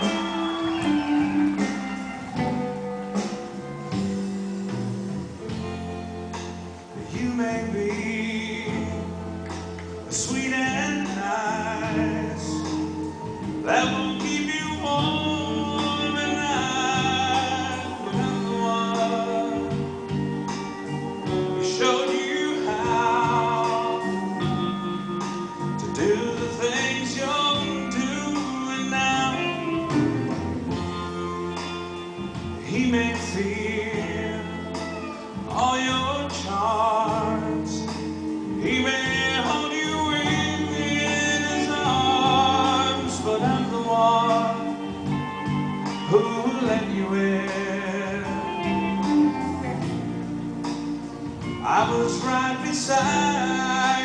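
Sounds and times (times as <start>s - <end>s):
backing band holding chords: 0.0s - 54.0s
man singing a country ballad: 6.9s - 9.4s, 10.0s - 13.0s, 13.6s - 20.1s, 21.4s - 24.6s, 25.8s - 30.0s, 32.4s - 45.2s, 46.0s - 49.5s, 51.6s - 54.0s.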